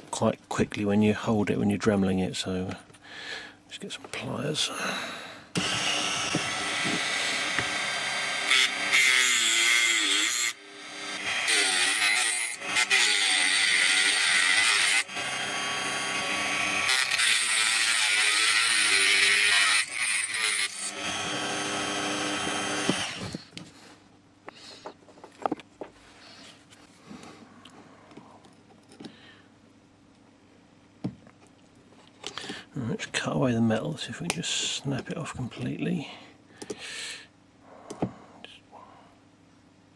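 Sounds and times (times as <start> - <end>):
rotary tool cutting metal: 5.6 - 23.4.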